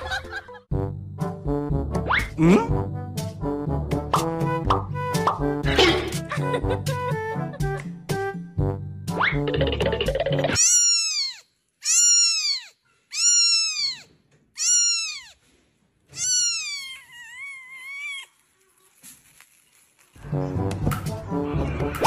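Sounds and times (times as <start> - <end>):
kitten mewing: 10.6 - 15.4, 16.2 - 18.3.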